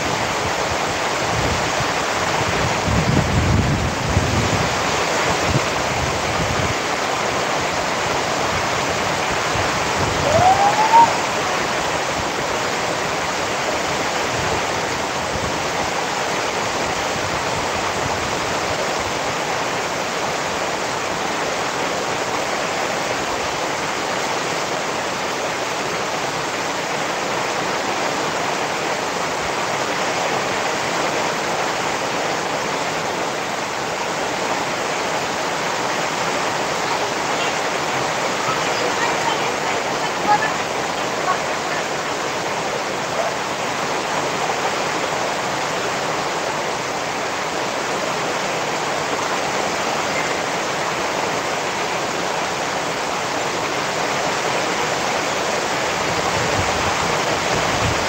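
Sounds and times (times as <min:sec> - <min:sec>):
steady rain: 0:00.0 - 0:58.0
rising squeak-like tone: 0:10.2 - 0:11.4.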